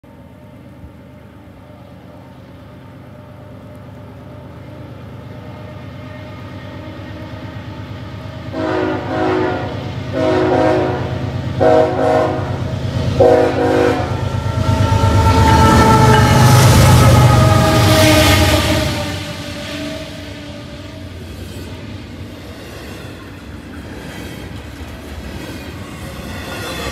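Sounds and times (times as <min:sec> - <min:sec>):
diesel locomotive engine rumble: 0:00.0 - 0:26.9
train wheels rushing: 0:06.6 - 0:26.9
locomotive air horn blasts: 0:08.5 - 0:12.6, 0:13.2 - 0:20.8.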